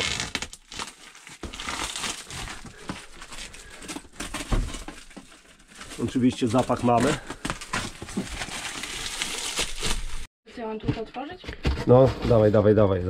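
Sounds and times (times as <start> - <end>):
plastic wrap crinkling: 0.0 - 10.3.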